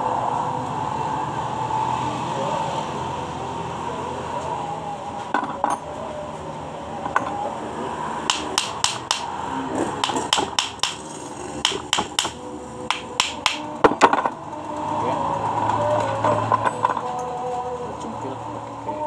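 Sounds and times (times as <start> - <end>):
hammer striking metal: 8.3 - 14.4.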